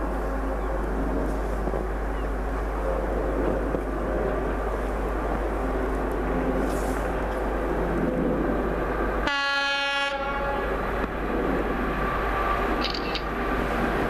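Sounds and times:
electric train running: 7.0s - 14.0s.

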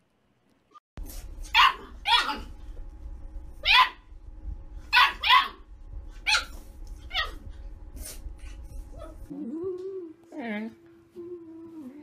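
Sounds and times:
dog barking in high yips: 1.5s - 2.5s, 3.6s - 4.0s, 4.9s - 5.6s, 6.2s - 7.4s
person humming: 9.3s - 12.0s.

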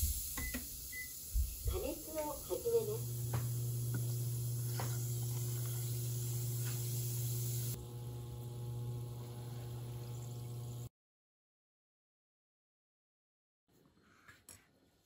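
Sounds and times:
cider hissing in a pot: 0.0s - 10.9s
steady low hum: 1.4s - 10.9s.

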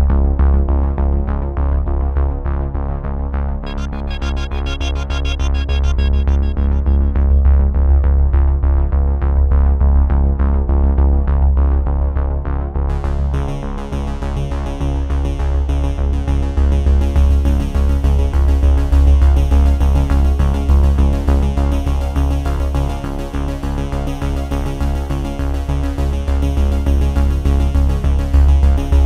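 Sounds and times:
synthesizer music: 3.6s - 8.2s.

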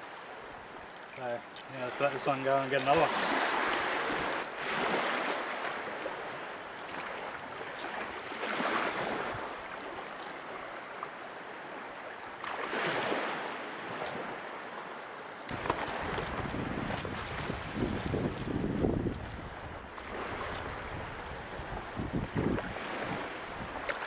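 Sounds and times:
small waves washing: 0.0s - 24.0s
wind buffeting microphone: 15.5s - 23.9s.

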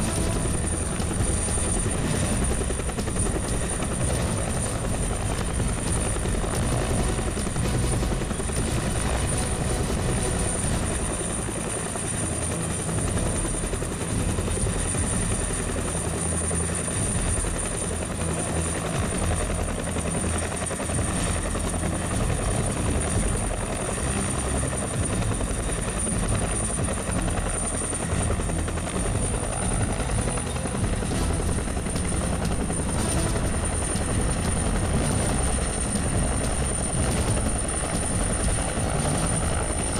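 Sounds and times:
helicopter rotor and turbine: 0.0s - 39.9s.

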